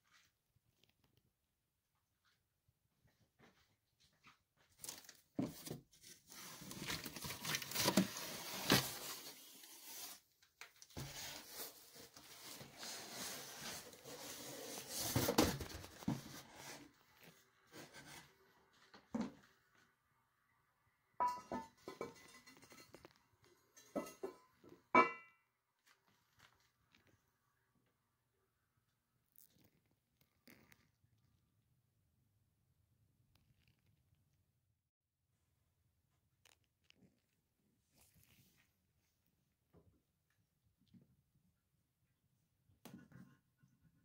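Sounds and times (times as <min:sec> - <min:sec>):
cardboard tearing and rustling: 0:04.9 - 0:10.3.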